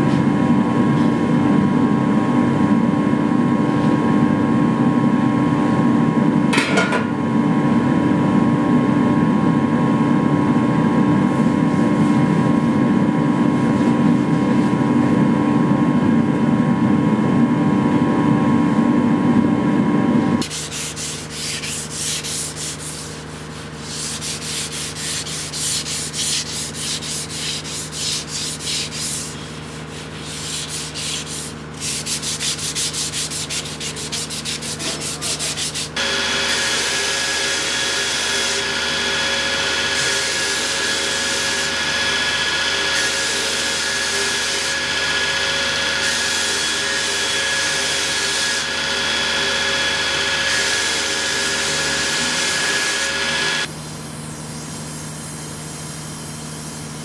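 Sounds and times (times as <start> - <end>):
loud mechanical roar with hum: 0.0 - 57.0
abrasive pads rubbing blade: 20.4 - 49.8
belt grinder motor humming: 36.0 - 53.7.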